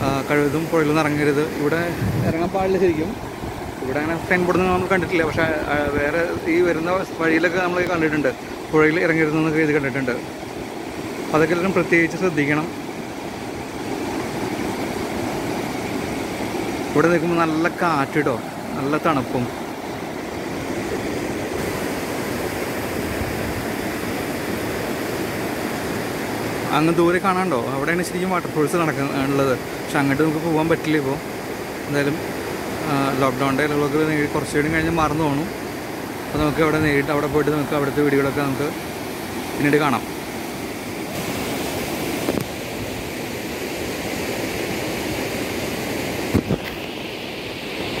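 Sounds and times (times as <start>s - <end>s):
river rushing over rocks: 0.0s - 48.0s
wind on microphone: 1.7s - 6.5s, 20.4s - 24.0s, 46.2s - 46.9s.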